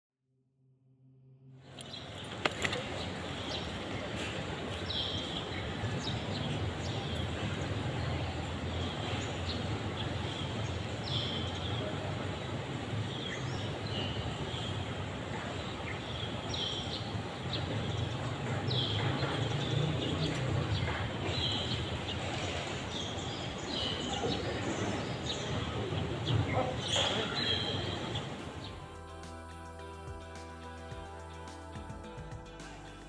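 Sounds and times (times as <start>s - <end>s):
distant traffic rumble: 1.6s - 28.7s
high bird calls: 13.2s - 28.7s.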